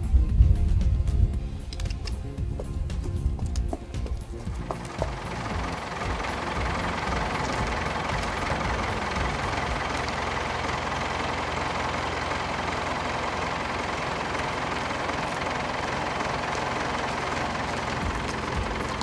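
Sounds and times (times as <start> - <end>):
tractor engine idling: 0.0 - 19.0.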